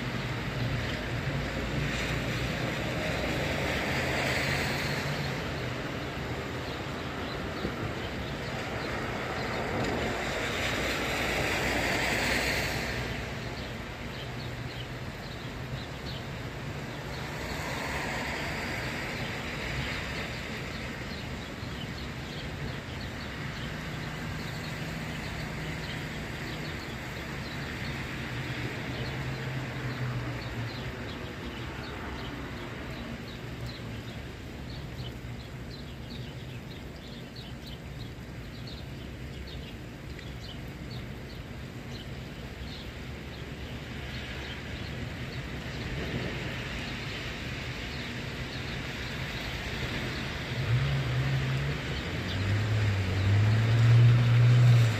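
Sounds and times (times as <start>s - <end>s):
tyres hissing on wet road: 0.0s - 54.9s
car engines humming: 45.6s - 54.9s.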